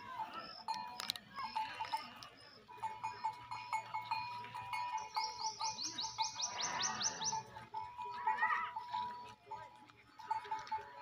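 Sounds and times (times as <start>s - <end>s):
birds calling: 4.8s - 7.5s.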